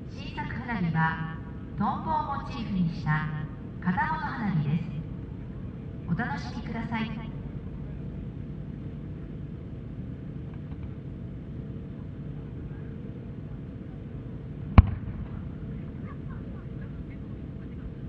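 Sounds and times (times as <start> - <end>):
outdoor crowd murmur: 0.0 - 18.0
firework boom: 14.8 - 15.6.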